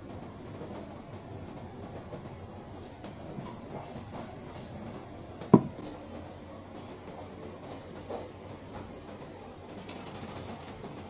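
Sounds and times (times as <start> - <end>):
steady low hum: 0.0 - 11.0
soft knock: 5.4 - 5.9.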